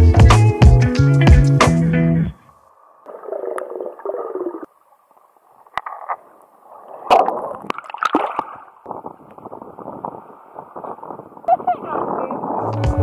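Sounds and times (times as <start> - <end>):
water sloshing and gurgling: 2.5 - 11.5
water splashes: 2.8 - 12.2.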